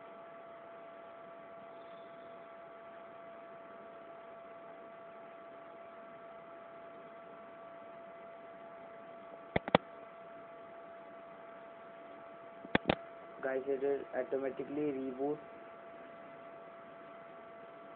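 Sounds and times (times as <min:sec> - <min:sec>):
steady electrical hum: 0:00.0 - 0:17.9
sharp clicks: 0:09.5 - 0:09.8, 0:12.7 - 0:13.0.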